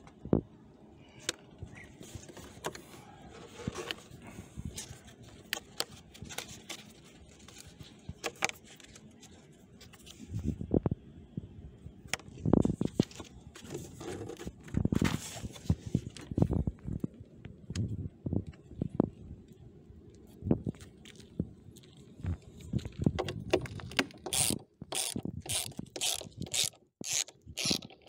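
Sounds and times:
plastic parts clicking and scraping: 0:01.2 - 0:10.5, 0:12.1 - 0:17.9, 0:22.4 - 0:28.0.

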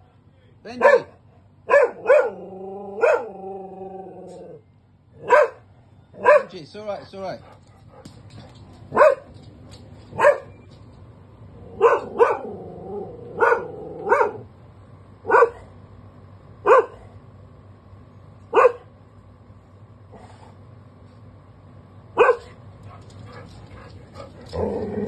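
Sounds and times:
dog barking: 0:00.8 - 0:02.4, 0:03.0 - 0:03.4, 0:05.2 - 0:06.6, 0:08.9 - 0:09.3, 0:10.1 - 0:10.6, 0:11.8 - 0:12.5, 0:13.3 - 0:14.5, 0:15.3 - 0:15.7, 0:16.6 - 0:17.1, 0:18.5 - 0:18.9, 0:22.2 - 0:23.0
dog rumbling growl: 0:02.3 - 0:04.6, 0:11.5 - 0:14.1, 0:23.3 - 0:25.0.

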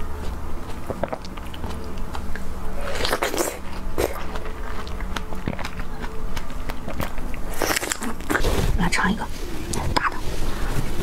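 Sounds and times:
person biting and chewing strawberry: 0:00.0 - 0:08.6.

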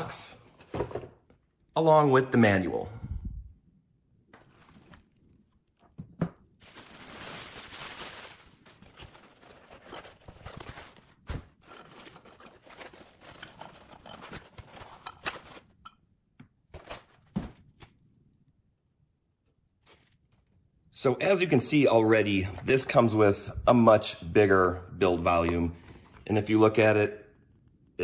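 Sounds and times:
plastic wrapping rustling: 0:04.3 - 0:15.9, 0:19.8 - 0:20.6
foam packing handled: 0:06.6 - 0:15.7.

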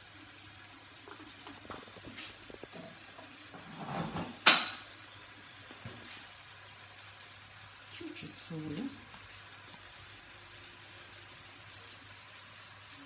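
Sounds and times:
fish frying in oil: 0:00.0 - 0:13.0
loud kitchen clack: 0:04.0 - 0:04.8.

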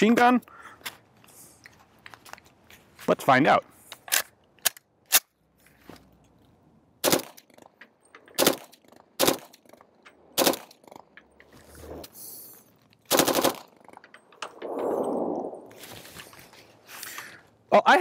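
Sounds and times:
carbine firing full-auto bursts: 0:07.0 - 0:07.4, 0:08.4 - 0:09.6, 0:10.4 - 0:10.7, 0:13.1 - 0:13.8.

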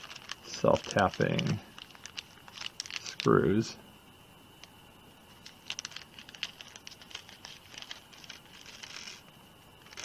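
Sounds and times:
plastic bag crinkling: 0:00.0 - 0:03.4, 0:05.4 - 0:09.2.

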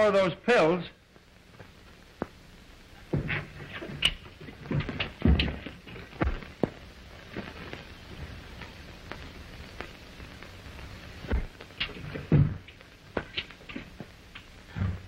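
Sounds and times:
film soundtrack hiss: 0:00.0 - 0:15.0
knocks and thumps: 0:03.1 - 0:06.8, 0:11.3 - 0:15.0.

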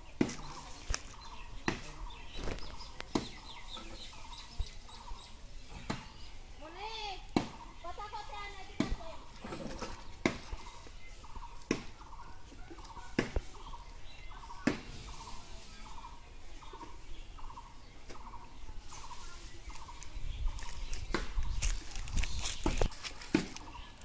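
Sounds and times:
camera brushing against clothing: 0:18.8 - 0:23.9.

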